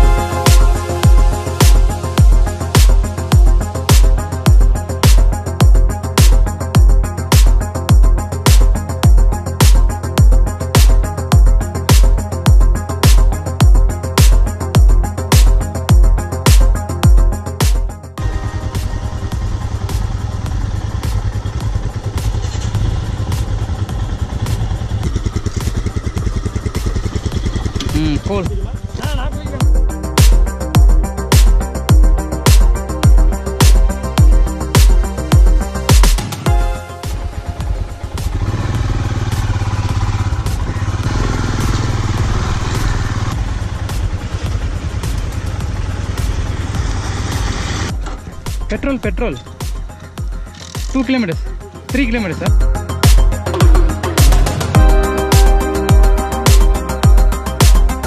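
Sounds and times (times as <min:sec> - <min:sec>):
motorcycle engine rumbling: 0:00.0 - 0:58.0
road and wind noise: 0:18.1 - 0:36.4, 0:37.0 - 0:52.0.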